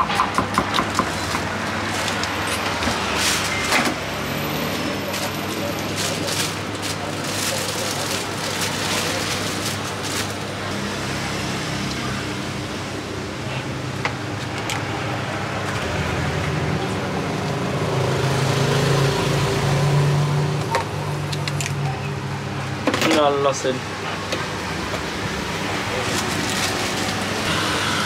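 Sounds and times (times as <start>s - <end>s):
passing traffic hum: 0.0s - 28.0s
vehicle engine passing: 14.8s - 20.7s.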